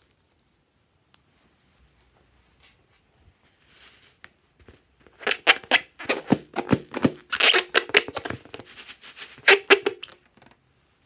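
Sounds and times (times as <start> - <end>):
rubber balloon squeaks: 5.2 - 10.5.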